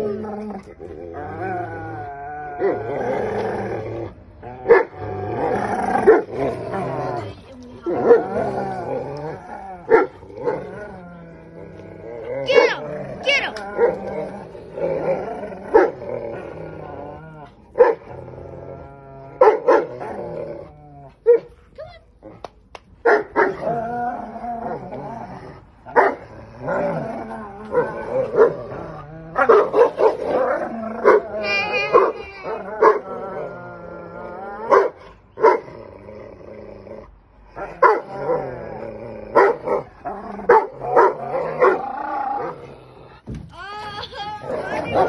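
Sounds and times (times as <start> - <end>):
dogs growling in play: 0.0 - 22.7, 23.4 - 43.3, 44.4 - 45.0
dog barking: 19.4 - 19.9, 23.0 - 23.6, 26.0 - 26.2, 29.4 - 30.2, 34.7 - 35.6, 37.8 - 38.0, 39.4 - 39.8, 40.5 - 41.8
dogs vocalising while playing: 27.6 - 33.0.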